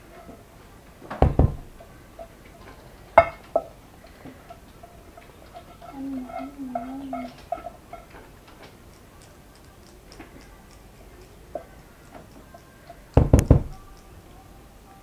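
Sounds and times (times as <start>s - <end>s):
utensils knocking against bowl: 1.0s - 14.2s
spatula scraping saucepan: 2.1s - 8.8s.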